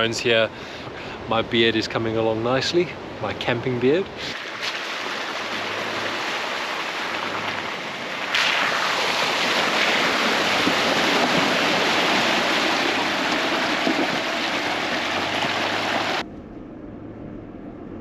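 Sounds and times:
car tyres sloshing through puddle: 4.3 - 16.2.

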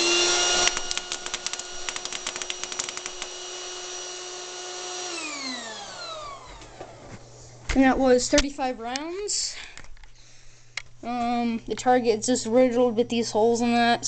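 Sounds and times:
electric pump whine: 0.0 - 7.7
airsoft pellets clattering: 0.6 - 3.5.

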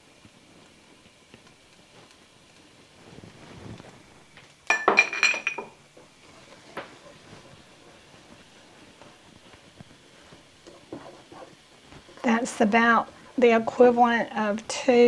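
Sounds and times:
dishes clinking: 4.7 - 5.8.

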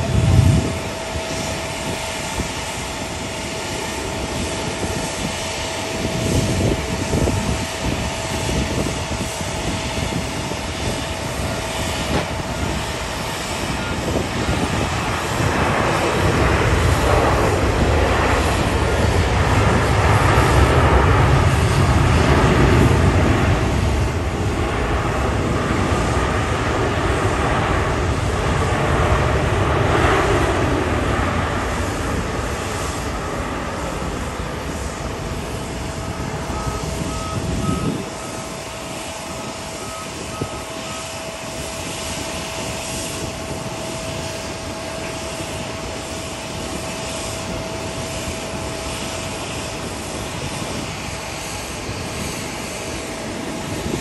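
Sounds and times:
deep low rumble: 0.0 - 3.4
jet engine noise landing: 0.0 - 54.0.

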